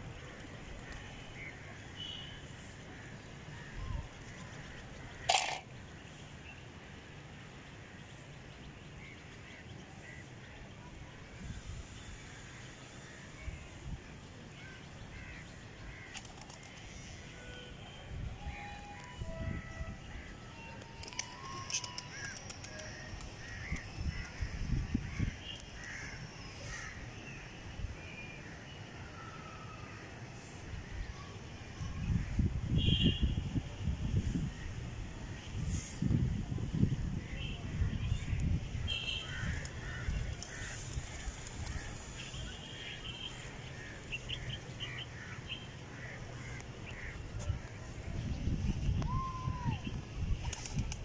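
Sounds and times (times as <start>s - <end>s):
faint outdoor background noise: 0.0s - 51.0s
pigeon wingbeats: 16.1s - 16.8s, 20.8s - 24.5s, 50.4s - 51.0s.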